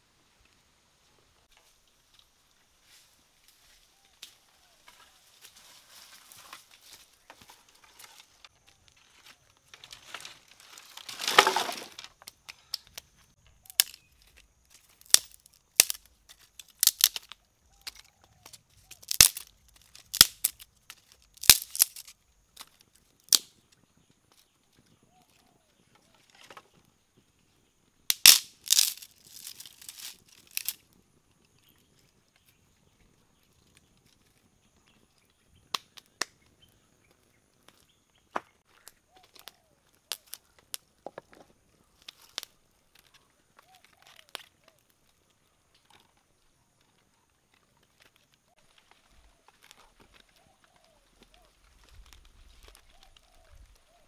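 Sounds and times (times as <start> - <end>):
rustling crash of wood: 9.7 - 12.1
dry sticks snapping: 13.6 - 23.5, 28.1 - 30.8, 38.7 - 40.7, 42.0 - 46.1, 47.5 - 53.9.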